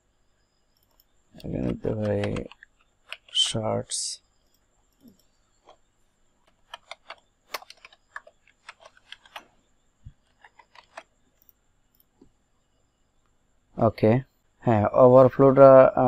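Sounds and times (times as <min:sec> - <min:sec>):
keyboard key clicks: 0:00.8 - 0:03.4, 0:06.5 - 0:09.4.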